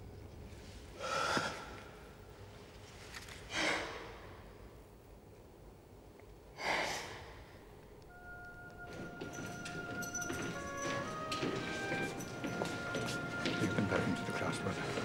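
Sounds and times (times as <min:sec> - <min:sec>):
heavy breathy exhalations: 0:00.8 - 0:02.2, 0:03.4 - 0:04.5, 0:06.5 - 0:07.6.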